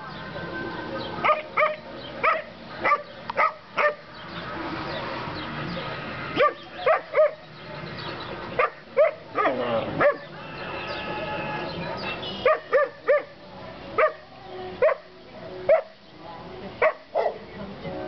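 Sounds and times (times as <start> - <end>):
dog yelping: 12.4 - 13.3.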